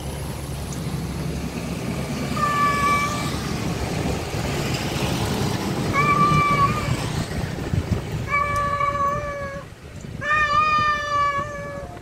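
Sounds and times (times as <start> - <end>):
low background rumble: 0.0 - 12.0
cat meowing: 2.4 - 3.3, 5.9 - 7.0, 8.3 - 12.0.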